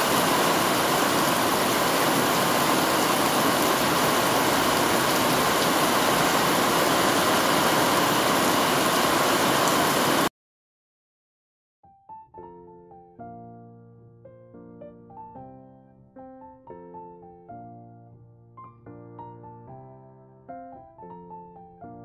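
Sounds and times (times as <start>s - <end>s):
heavy rain splashing into water drum: 0.0s - 10.3s.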